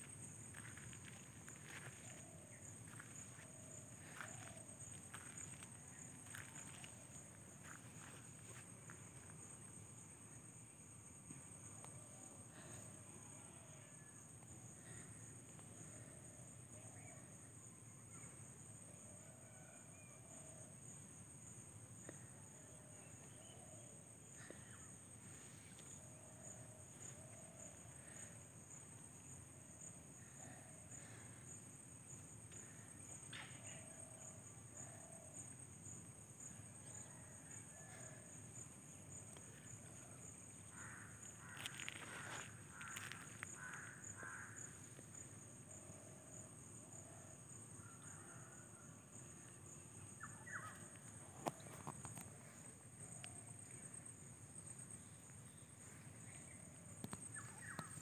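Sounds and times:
high insect drone: 0:00.0 - 0:19.8, 0:20.4 - 0:58.0.

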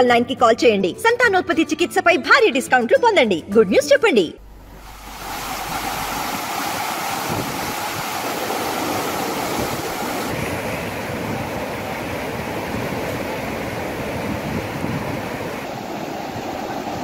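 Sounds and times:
floodwater rushing: 0:04.4 - 0:17.0.

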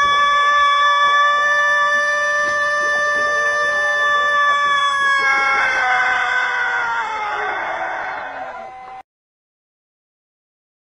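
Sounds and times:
rooster crowing: 0:03.8 - 0:09.0.

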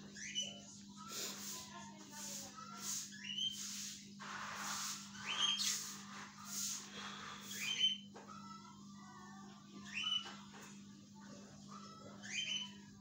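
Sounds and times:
bird chirping: 0:00.0 - 0:00.8, 0:02.6 - 0:08.4, 0:09.8 - 0:10.4, 0:11.7 - 0:12.9.

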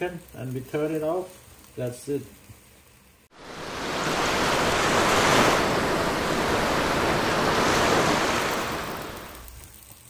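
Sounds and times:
rushing transition sound effect: 0:03.3 - 0:09.5.

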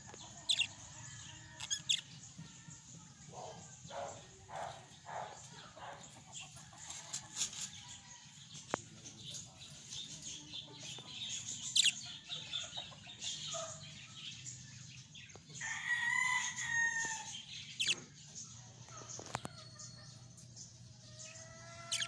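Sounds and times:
budgerigars chirping: 0:00.2 - 0:02.2, 0:09.4 - 0:14.0, 0:17.3 - 0:18.4, 0:21.0 - 0:22.0.

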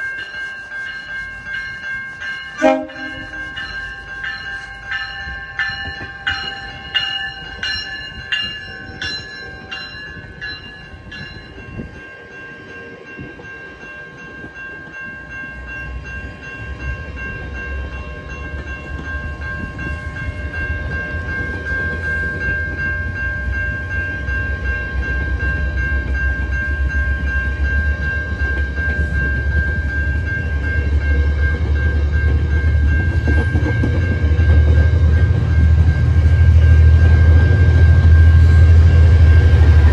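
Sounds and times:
bell ringing: 0:00.0 - 0:39.9
train coaches rolling past: 0:00.0 - 0:39.9
diesel locomotive rumble: 0:15.6 - 0:39.9.

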